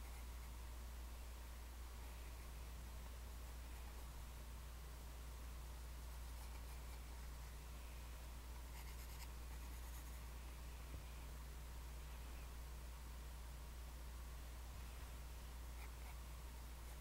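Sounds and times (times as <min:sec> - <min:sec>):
steady low hum: 0:00.0 - 0:17.0
pencil scratching on paper: 0:06.3 - 0:07.3, 0:08.7 - 0:10.3.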